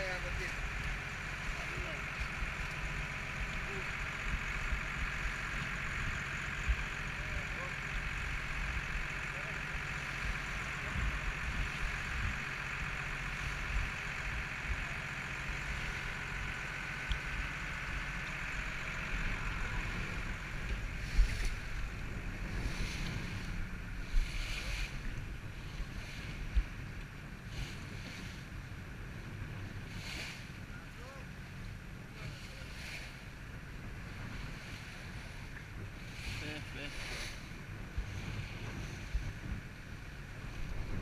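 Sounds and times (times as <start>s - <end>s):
boat engine humming: 0.0s - 41.0s
water rushing along hull: 0.0s - 41.0s
wind on microphone: 10.1s - 30.8s, 32.5s - 41.0s.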